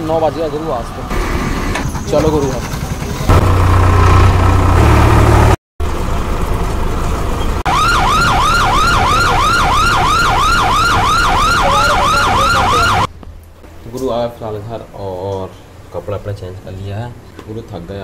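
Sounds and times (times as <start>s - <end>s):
tractor engine running: 1.1s - 11.4s
electronic siren warble: 7.7s - 13.1s.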